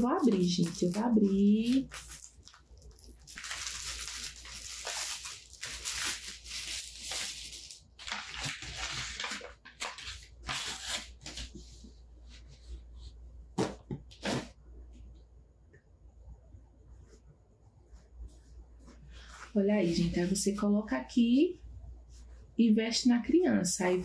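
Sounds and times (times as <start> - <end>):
plastic wrapping crinkling and tearing: 0.0 - 11.4.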